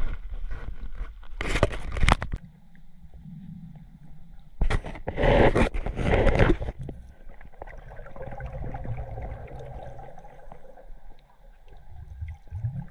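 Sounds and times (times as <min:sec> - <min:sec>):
water sloshing and splashing: 0:04.5 - 0:12.9
faint underwater clicks: 0:09.3 - 0:12.9.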